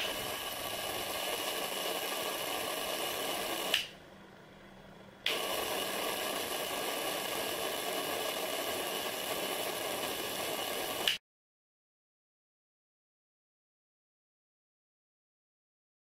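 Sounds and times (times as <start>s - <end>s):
electrical discharge hiss and whine: 0.0s - 4.0s, 5.3s - 11.2s.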